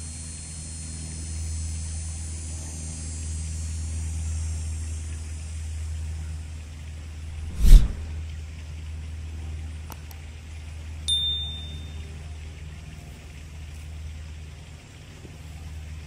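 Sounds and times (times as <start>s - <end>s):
low outdoor rumble: 5.8s - 9.8s
short high ding: 11.1s - 12.0s.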